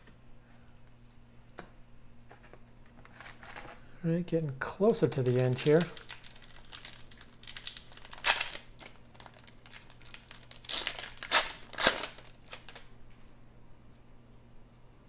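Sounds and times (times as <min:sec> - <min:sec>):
wrapper tearing and crinkling: 0:05.0 - 0:12.9.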